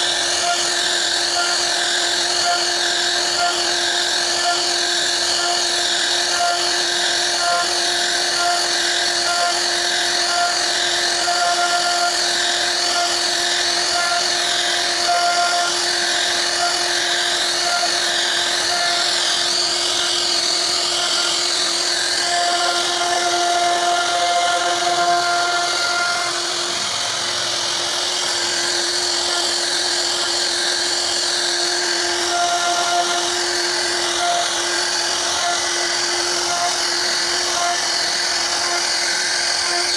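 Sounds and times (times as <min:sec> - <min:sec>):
cnc router spindle whine: 0:00.0 - 0:39.9
router bit cutting wood: 0:00.0 - 0:39.9.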